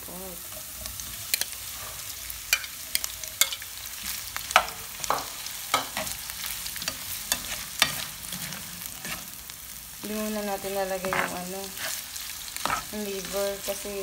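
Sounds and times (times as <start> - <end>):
meat sizzling in a frying pan: 0.0 - 14.0
spoon scraping and knocking pan: 1.3 - 6.2, 6.8 - 9.4, 10.9 - 12.0, 12.6 - 13.5.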